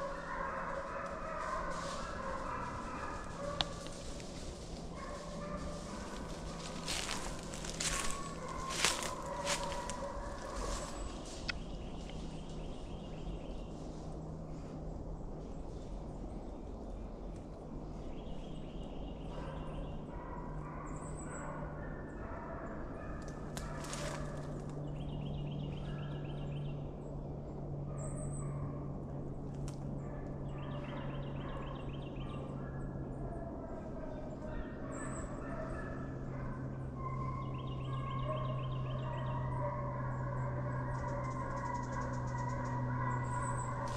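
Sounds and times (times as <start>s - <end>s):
birds chirping: 0.0s - 13.8s, 34.1s - 43.9s
distant hounds baying: 0.0s - 13.8s, 18.8s - 43.9s
steady low hum: 0.0s - 43.9s.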